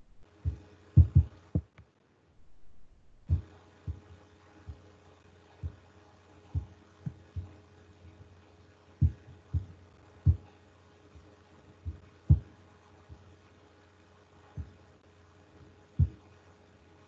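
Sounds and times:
dull low thumps: 0.0s - 1.7s, 2.4s - 4.1s, 9.0s - 9.7s, 11.8s - 12.5s, 16.0s - 16.2s
faint steady hum: 0.0s - 17.0s.

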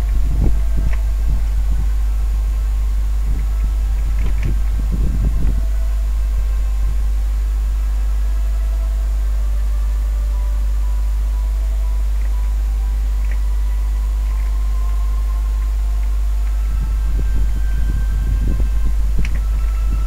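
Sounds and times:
low electrical hum: 0.0s - 20.0s
soft low bumps: 0.0s - 20.0s.

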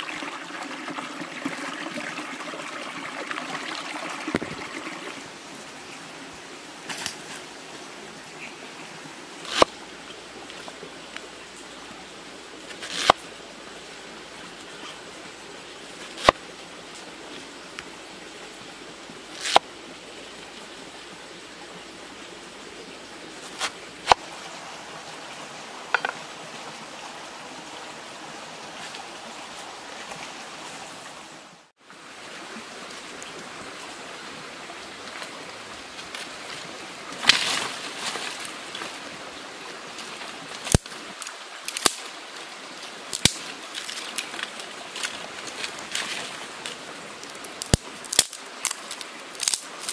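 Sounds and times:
sticks crackling and snapping: 40.6s - 40.9s, 41.7s - 42.1s, 43.1s - 46.2s, 47.2s - 49.9s.

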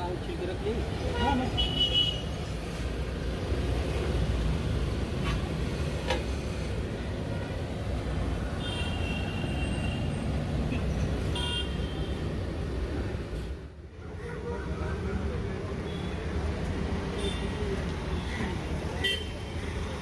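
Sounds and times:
road traffic rumbling: 0.0s - 20.0s
vehicle horn honking: 11.3s - 12.1s.

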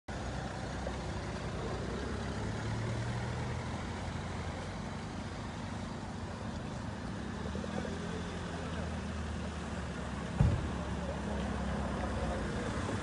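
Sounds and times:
engine idling: 0.1s - 13.0s
street noise: 0.1s - 13.0s.

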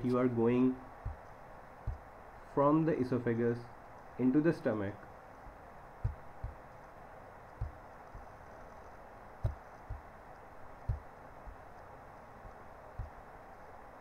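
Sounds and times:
soft dull low thumps: 0.0s - 2.5s, 5.0s - 14.0s
faint steady hiss: 0.0s - 14.0s.

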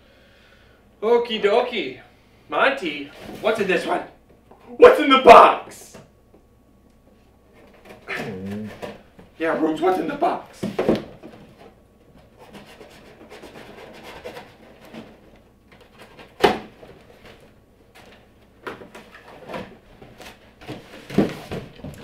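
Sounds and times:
cardboard rustling and scraping: 10.6s - 18.2s, 18.8s - 22.0s.

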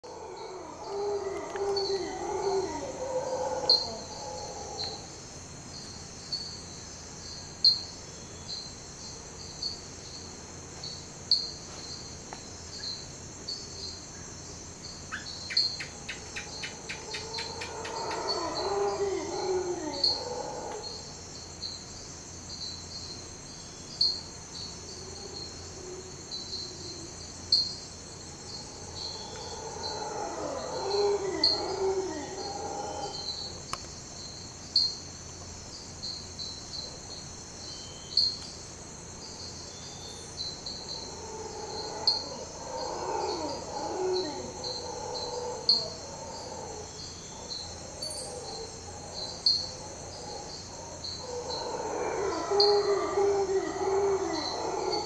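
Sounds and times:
howler monkeys howling: 0.0s - 5.2s, 15.1s - 21.2s, 24.6s - 27.4s, 28.1s - 33.6s, 40.5s - 55.0s
insects chirping: 0.0s - 55.0s.

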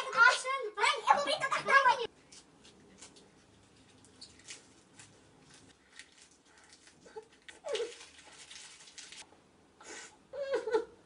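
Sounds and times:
lettuce crunching: 2.3s - 9.3s.

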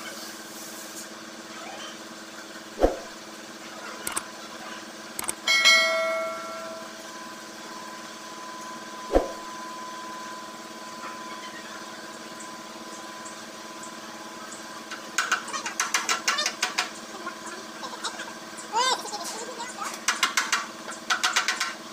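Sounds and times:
steady low hum: 2.6s - 14.9s
metal tank ringing: 5.5s - 7.0s.

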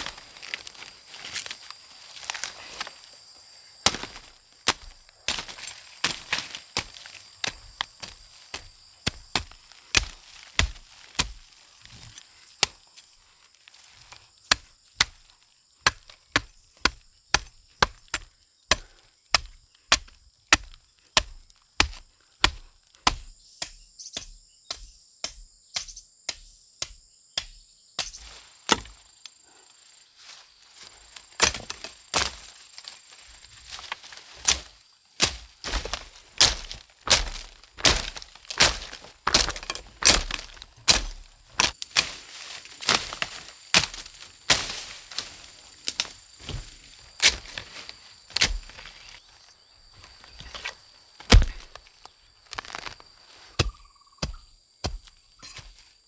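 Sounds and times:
insects droning: 0.0s - 56.0s
blade chopping strikes: 3.8s - 7.6s, 34.4s - 47.6s, 51.2s - 51.8s.

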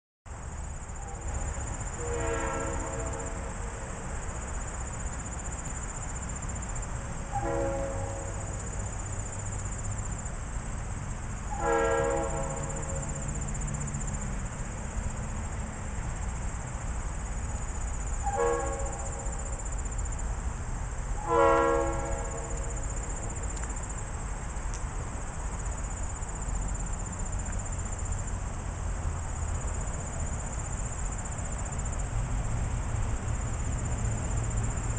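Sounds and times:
high insect drone: 0.3s - 34.9s
locomotive air horn blasts: 1.0s - 4.0s, 7.3s - 8.6s, 11.5s - 13.2s, 18.2s - 19.6s, 21.2s - 23.4s.

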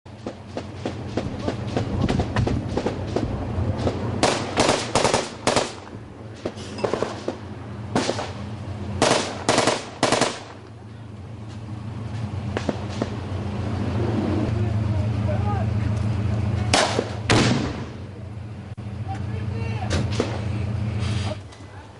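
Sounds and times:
low hum: 0.1s - 21.9s
automatic gunfire: 3.8s - 5.9s, 9.0s - 10.6s.

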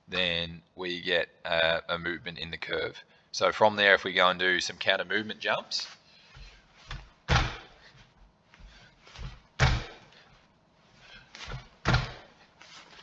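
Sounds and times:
heavy landing thuds: 6.4s - 7.8s, 8.6s - 10.1s, 11.4s - 12.4s
soft jump thumps: 8.6s - 10.0s, 11.4s - 12.3s.

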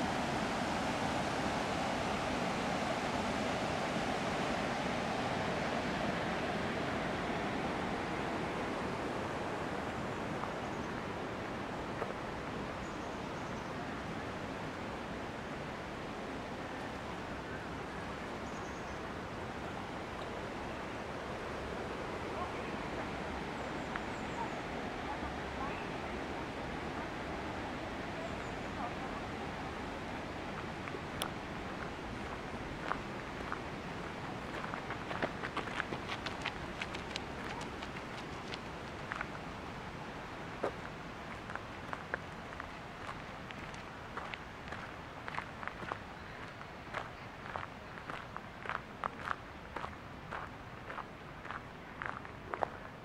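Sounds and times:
steady rushing noise: 0.0s - 12.9s, 19.0s - 47.5s.

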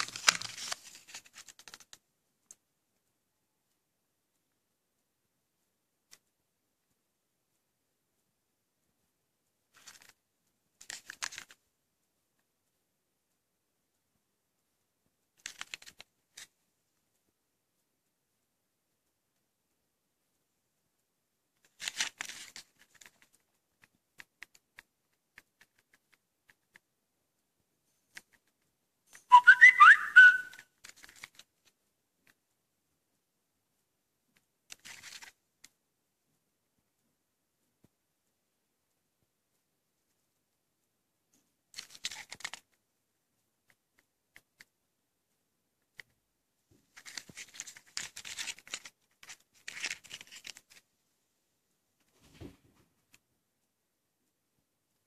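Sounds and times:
fingertips rustling on cardboard: 46.8s - 50.8s.

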